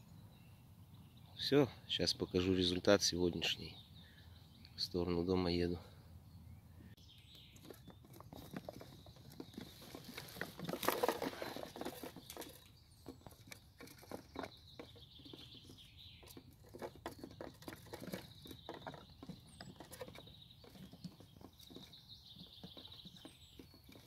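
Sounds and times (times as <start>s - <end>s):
taps and scratches on wood: 7.3s - 24.0s.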